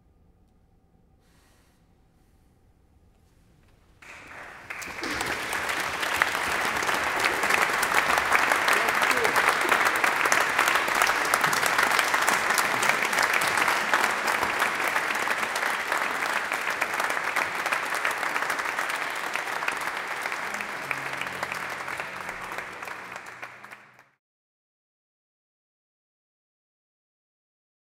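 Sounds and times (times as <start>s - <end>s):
audience applauding: 4.0s - 24.2s.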